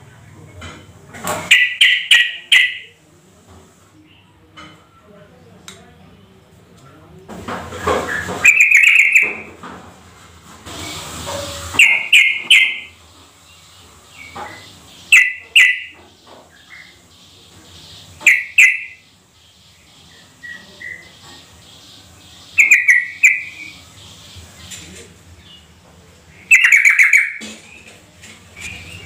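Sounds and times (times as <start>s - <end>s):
bird calling clipped notes: 11.8s - 12.9s.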